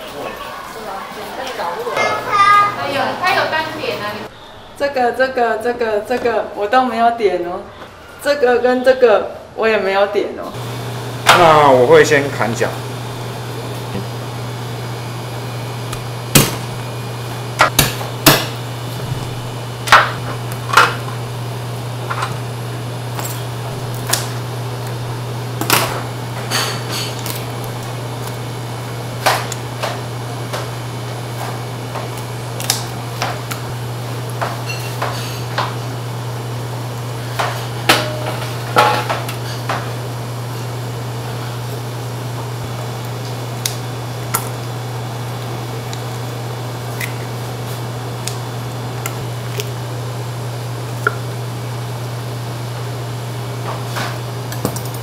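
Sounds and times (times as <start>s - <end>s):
steady low hum: 10.5s - 55.0s
cleaver chopping on wooden block: 17.6s - 18.6s.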